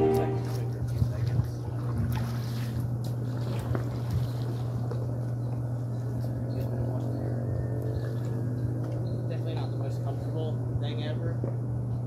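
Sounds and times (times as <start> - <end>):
paddle splashing in water: 0.0 - 5.0
steady low hum: 0.0 - 12.0.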